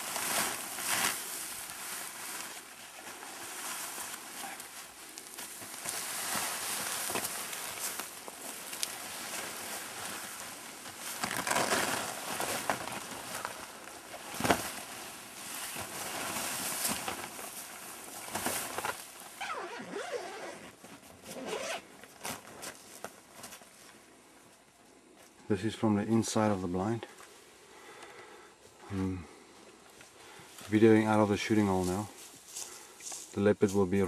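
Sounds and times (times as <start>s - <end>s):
fabric rustling and flapping: 0.0s - 24.1s.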